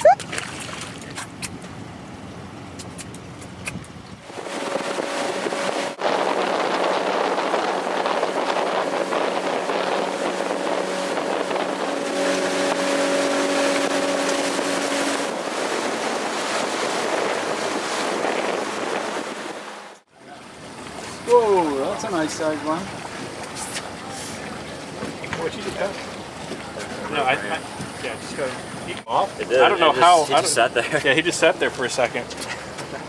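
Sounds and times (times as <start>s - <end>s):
motorboat engine running: 0.0s - 33.0s
wind rushing over microphone: 3.5s - 20.0s.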